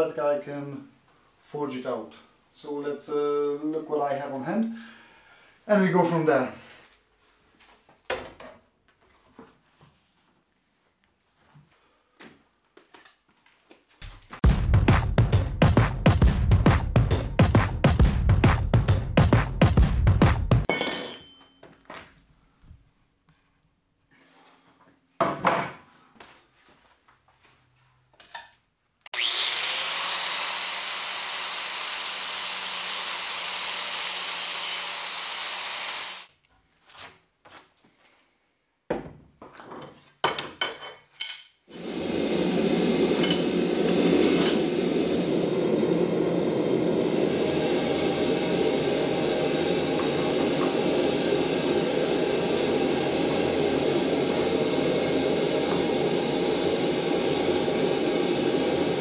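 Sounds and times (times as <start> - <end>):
power tool whining: 29.1 - 36.3, 41.8 - 59.0
gas forge burners roaring: 41.7 - 59.0.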